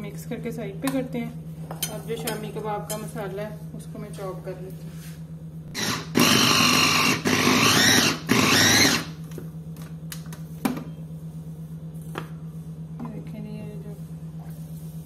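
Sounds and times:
electric chopper whirring: 5.7s - 9.2s.

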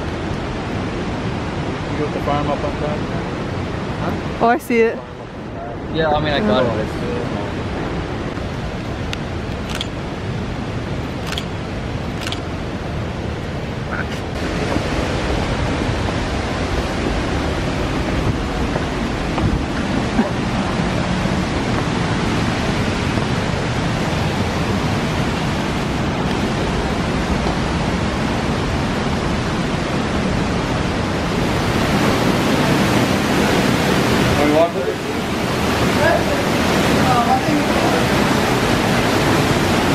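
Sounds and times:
water rushing over rocks: 0.0s - 39.9s
sharp clicks: 9.5s - 10.0s, 11.2s - 11.6s, 12.2s - 12.5s.

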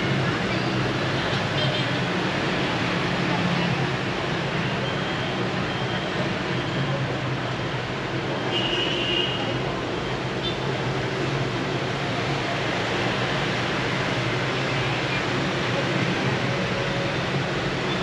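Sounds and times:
street traffic noise: 0.0s - 18.0s.

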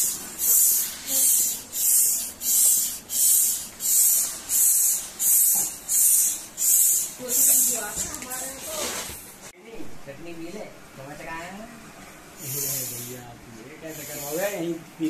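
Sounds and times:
hand air pump hissing: 0.0s - 9.2s, 12.4s - 13.2s, 13.9s - 14.6s.

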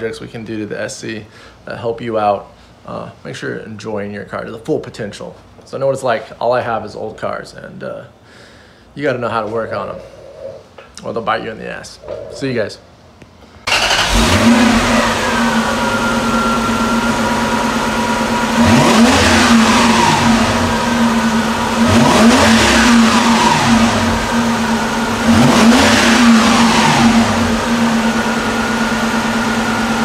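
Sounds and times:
car engine idling and revving: 13.7s - 30.0s.

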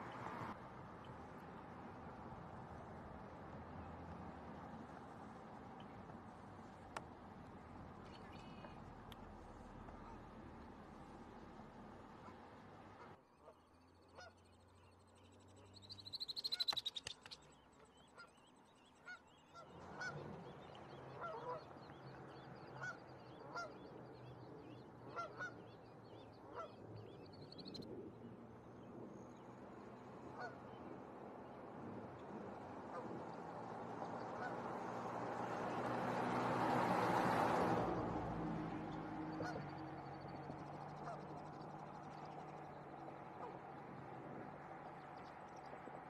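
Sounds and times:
goose honking: 19.1s - 20.2s, 34.4s - 34.6s, 39.4s - 39.7s.

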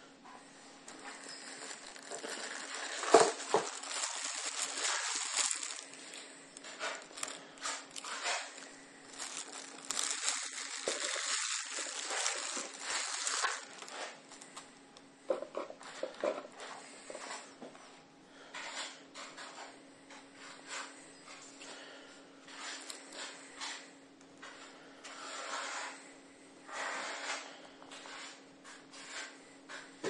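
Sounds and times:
plastic wrapping crinkling: 0.9s - 14.7s, 22.5s - 23.8s.

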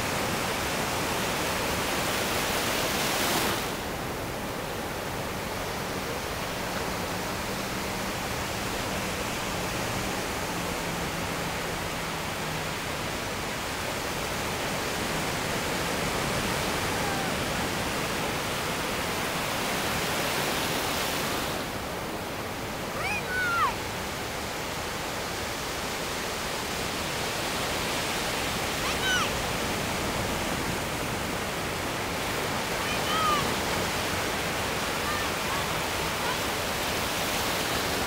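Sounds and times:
ocean waves breaking: 0.0s - 38.0s
high-pitched cries: 23.0s - 23.8s.

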